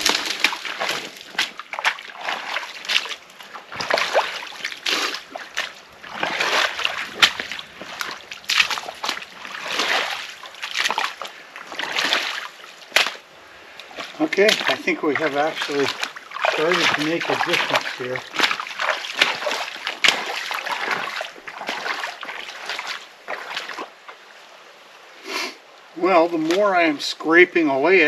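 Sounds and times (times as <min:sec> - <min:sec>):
boots scraping mud: 0:00.0 - 0:24.0, 0:26.3 - 0:27.0
boots splashing in muddy water: 0:00.0 - 0:24.0, 0:26.1 - 0:27.0.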